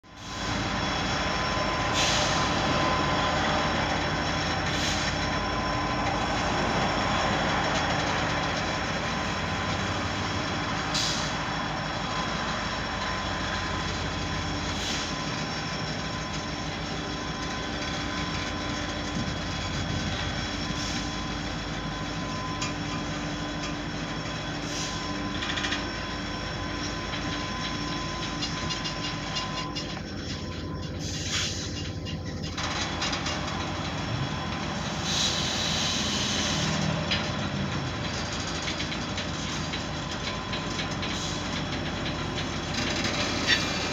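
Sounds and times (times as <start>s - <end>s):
train wheels rumbling on rails: 0.0s - 43.9s
thin steady wheel squeal: 0.1s - 43.9s.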